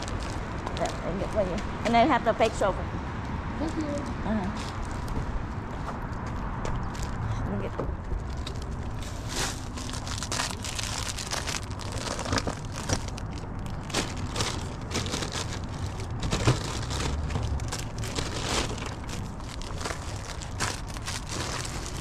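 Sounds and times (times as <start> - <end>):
plastic wrappers crinkling: 0.0 - 1.2, 8.2 - 22.0.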